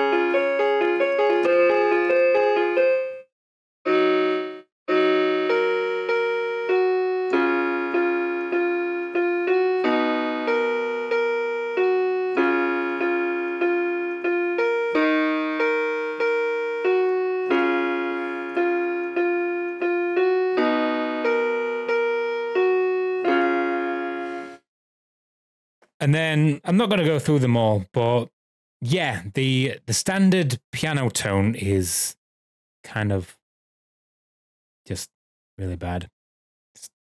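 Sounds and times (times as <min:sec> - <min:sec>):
electronic keyboard piano chords: 0:00.0 - 0:24.7.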